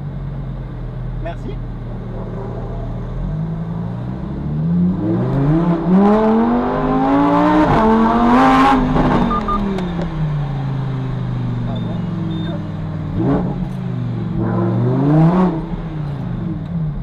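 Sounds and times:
car engine accelerating hard: 0.0s - 17.0s
short beeps: 9.2s - 10.1s, 11.7s - 12.7s.

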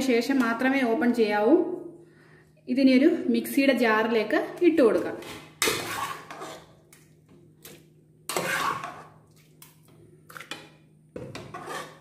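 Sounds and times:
spoon scraping metal pot: 4.9s - 6.8s, 8.3s - 9.2s, 11.2s - 12.0s.

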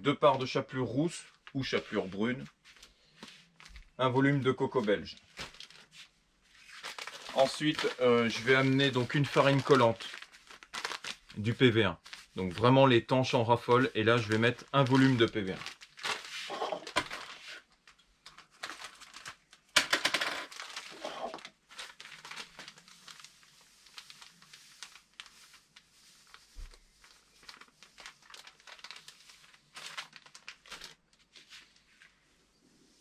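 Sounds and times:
bag rustling: 20.5s - 31.0s.

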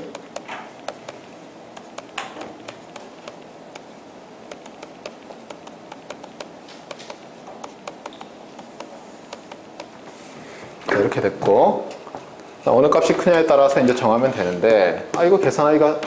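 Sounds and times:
stylus tapping on pen tablet: 0.0s - 10.0s
room noise: 0.0s - 16.0s.

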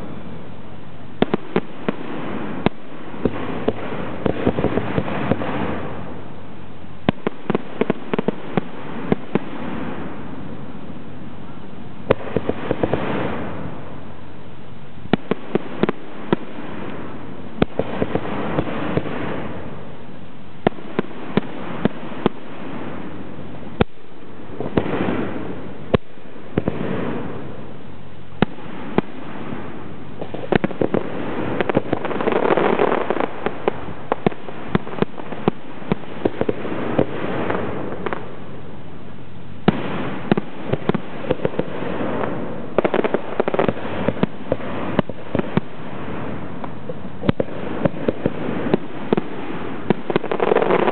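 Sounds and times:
firework shells bursting: 7.0s - 10.2s, 28.4s - 38.5s, 39.6s - 50.9s.

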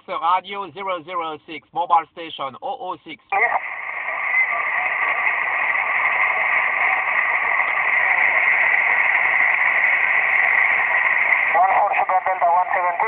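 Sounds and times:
radio static hiss: 0.0s - 13.0s.

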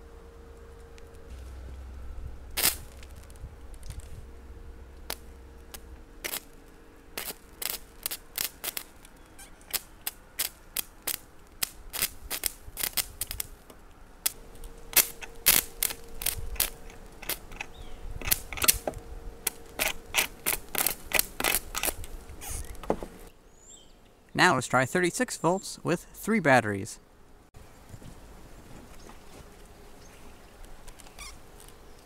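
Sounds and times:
welding arc crackling: 0.0s - 23.3s.

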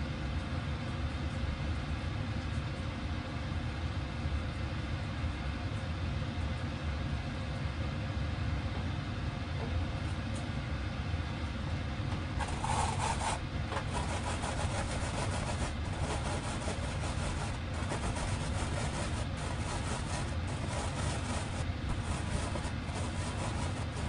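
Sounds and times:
low hum: 11.8s - 24.0s
rice rubbing in a mesh strainer: 12.4s - 24.0s.

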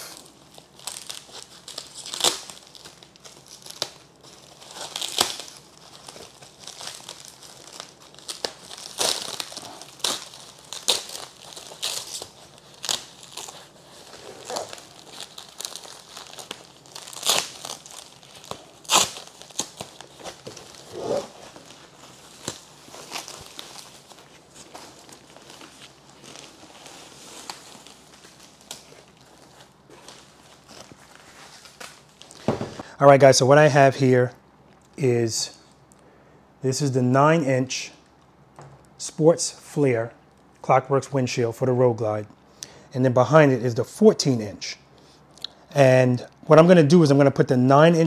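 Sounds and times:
foam packing wrap crinkling: 0.0s - 32.9s.

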